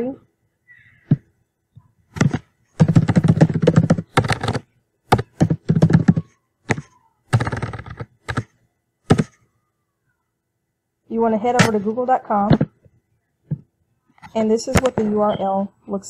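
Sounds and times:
computer keyboard typing: 0:02.2 - 0:08.5, 0:09.1 - 0:09.4.

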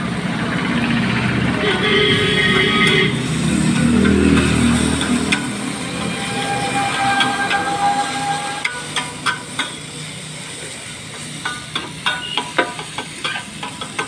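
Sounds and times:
steady high tone: 0:02.0 - 0:09.3
spatula clinking on iron griddle: 0:11.2 - 0:14.0.

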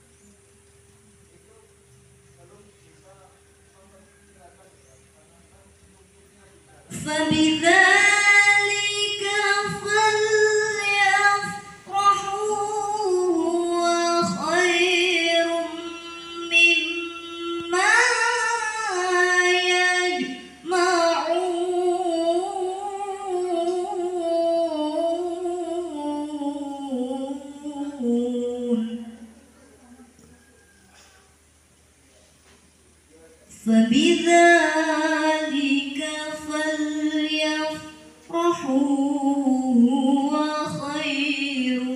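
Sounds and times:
person chanting recitation: 0:06.9 - 0:29.7, 0:33.5 - 0:41.9.

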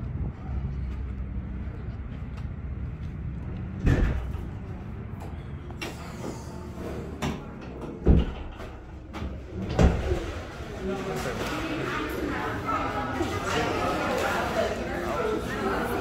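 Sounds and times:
door thuds: 0:03.8 - 0:04.4, 0:08.0 - 0:08.7
glass doors swinging shut: 0:07.0 - 0:10.6.

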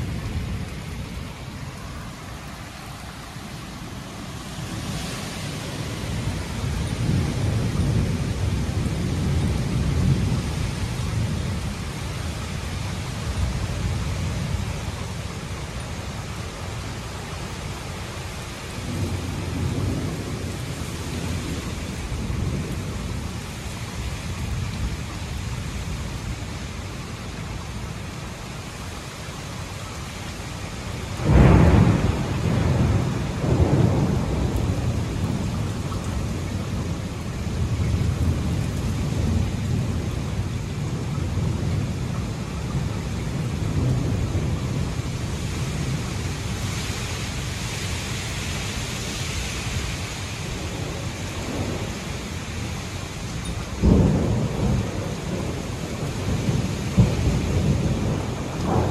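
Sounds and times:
heavy rain: 0:00.0 - 0:58.9
rumbling thunder: 0:05.5 - 0:11.9, 0:18.8 - 0:23.3, 0:31.2 - 0:46.6, 0:50.6 - 0:53.0, 0:53.7 - 0:58.9
loud thunderclap: 0:31.2 - 0:35.6, 0:53.8 - 0:58.9.

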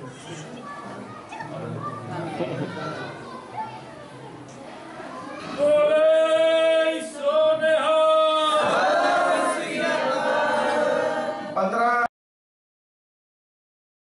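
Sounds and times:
congregation shouting together: 0:05.6 - 0:11.6.

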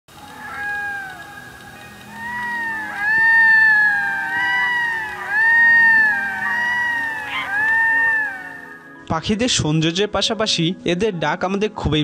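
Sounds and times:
loon wailing: 0:00.1 - 0:08.9.

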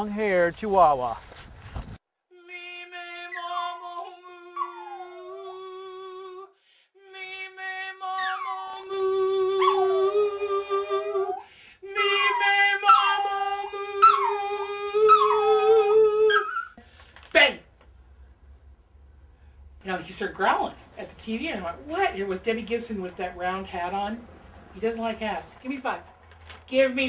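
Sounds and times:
woman singing long notes: 0:02.3 - 0:16.5
dog howling: 0:03.2 - 0:06.4, 0:08.0 - 0:11.4, 0:12.0 - 0:16.8.

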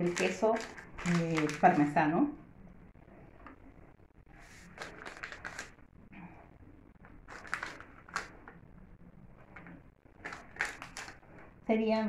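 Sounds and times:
plastic bag crinkling: 0:00.0 - 0:02.1, 0:04.5 - 0:05.9, 0:07.0 - 0:08.6, 0:09.5 - 0:11.5.

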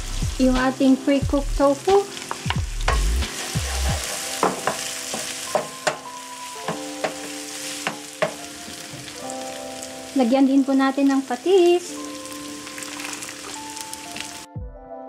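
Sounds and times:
vegetables sizzling in wok: 0:00.0 - 0:14.5
wooden spatula knocking pan: 0:02.3 - 0:09.2.

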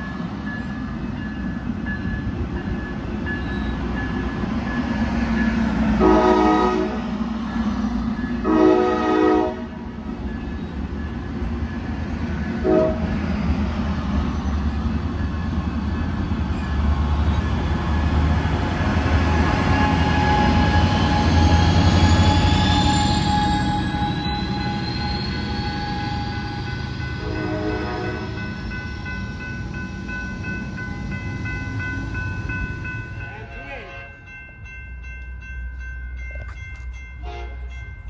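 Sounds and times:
locomotive whine: 0:00.0 - 0:38.0
train coaches rumbling past: 0:00.0 - 0:38.0
train horn blasts: 0:06.0 - 0:07.1, 0:08.4 - 0:09.8, 0:12.6 - 0:13.2, 0:27.2 - 0:28.4, 0:37.2 - 0:37.8.

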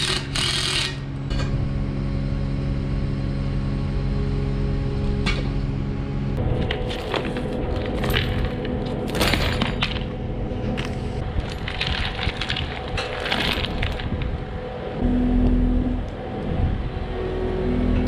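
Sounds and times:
skid steer engine running: 0:00.0 - 0:18.0
louder low hum: 0:01.1 - 0:18.0
chain clinking and rattling: 0:06.5 - 0:10.1, 0:10.8 - 0:14.2.

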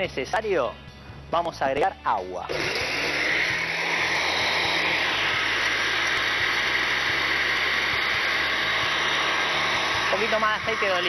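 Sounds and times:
countertop blender running: 0:02.5 - 0:11.0.

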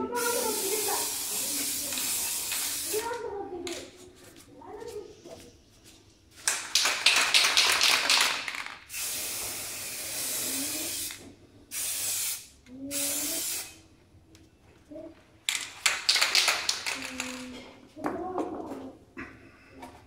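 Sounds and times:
spray can hissing: 0:00.1 - 0:03.2, 0:06.5 - 0:13.8, 0:15.8 - 0:17.4
spray can rattling: 0:00.2 - 0:03.2, 0:06.4 - 0:13.8, 0:15.5 - 0:17.6.

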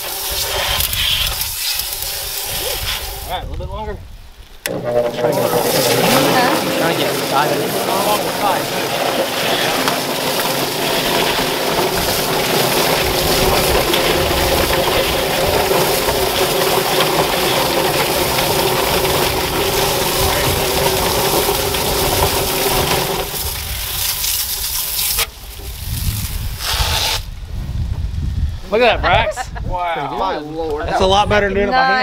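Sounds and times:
hose spraying water: 0:00.0 - 0:03.4, 0:04.7 - 0:27.3
chicken plucker drum tumbling: 0:04.6 - 0:25.9.

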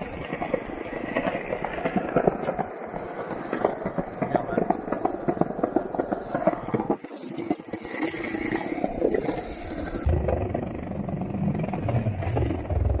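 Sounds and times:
jet aircraft rumble: 0:09.2 - 0:13.0.

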